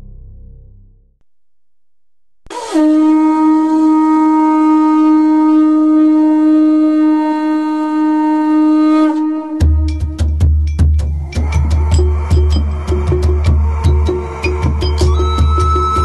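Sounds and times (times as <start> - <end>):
long horn note: 2.5 - 10.2
drum beats: 9.6 - 16.0.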